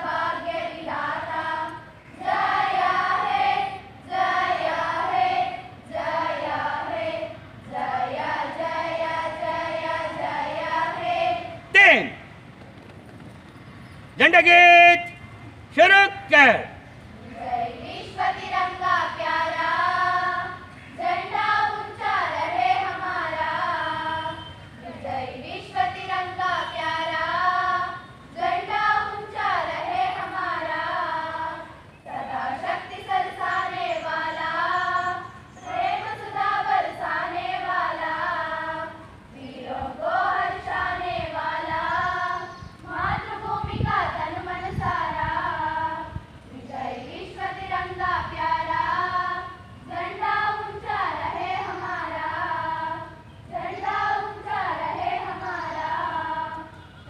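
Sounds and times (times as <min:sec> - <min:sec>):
children singing in chorus: 0:00.0 - 0:11.6, 0:17.2 - 0:56.8.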